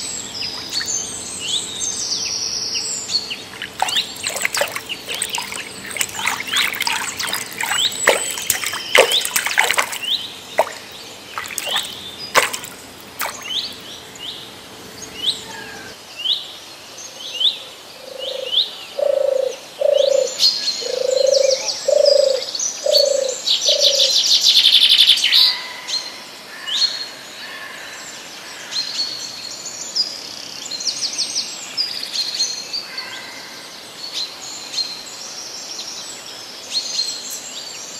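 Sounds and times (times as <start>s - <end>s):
birds chirping: 0.0s - 15.9s.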